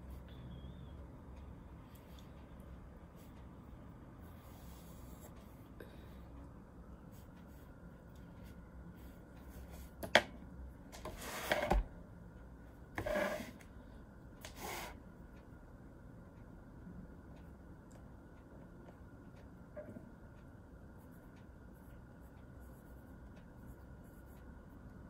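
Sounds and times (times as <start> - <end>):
pencil scratching on paper: 13.0 - 13.6.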